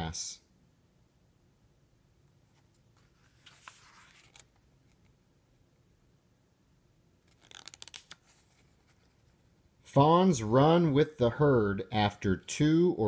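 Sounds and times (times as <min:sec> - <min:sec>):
book page turning: 0:02.6 - 0:05.1, 0:07.2 - 0:09.5.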